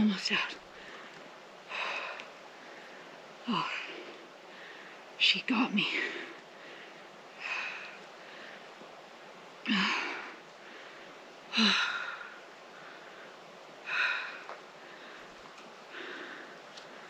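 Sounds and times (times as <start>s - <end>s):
woman gasping breaths: 9.7s - 15.3s, 15.9s - 17.0s.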